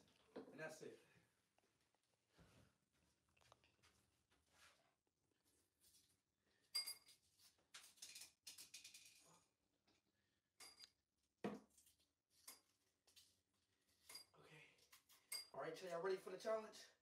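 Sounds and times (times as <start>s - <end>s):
mints clinking against glass: 6.7s - 7.2s, 15.1s - 15.6s.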